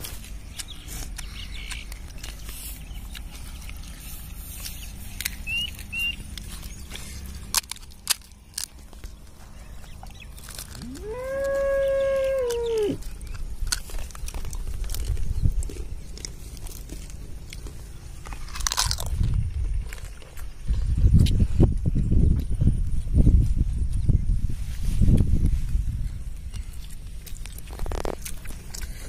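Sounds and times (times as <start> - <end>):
crisp shells cracking: 5.2 - 19.3, 26.8 - 29.0.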